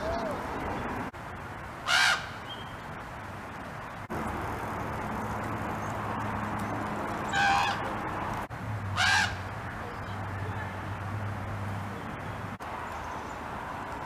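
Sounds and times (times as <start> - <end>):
raven harsh screaming calls: 1.8 - 2.5, 7.2 - 7.9, 8.9 - 9.4.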